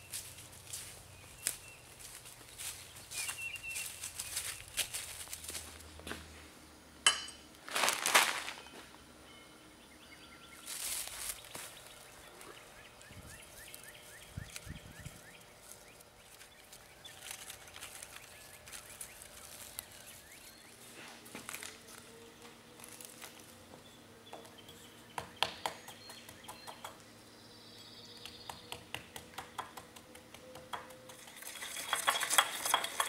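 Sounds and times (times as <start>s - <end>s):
rustling in dry leaves: 0.0s - 5.9s, 7.6s - 8.8s, 10.6s - 23.6s
faint bird chirps: 1.2s - 5.1s.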